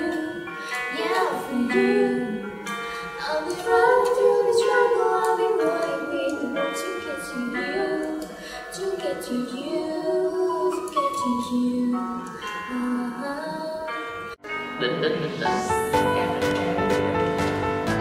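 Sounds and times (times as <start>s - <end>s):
women singing together: 0.0s - 14.0s.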